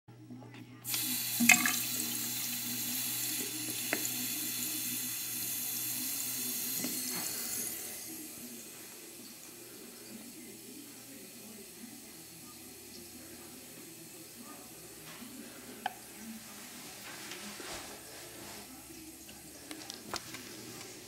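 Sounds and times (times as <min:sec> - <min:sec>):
water running into sink: 0:00.8 - 0:16.3.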